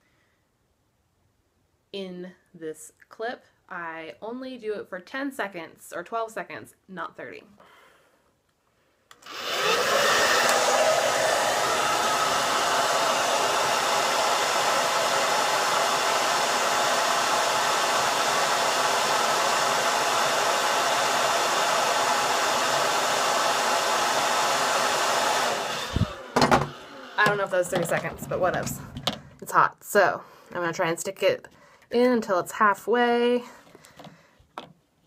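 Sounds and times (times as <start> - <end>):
hair dryer blowing: 9.1 - 29.4.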